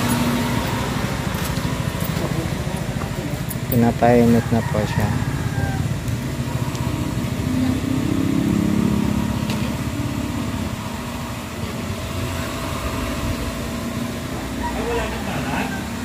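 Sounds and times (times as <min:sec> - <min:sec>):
pump humming: 0:05.2 - 0:16.0.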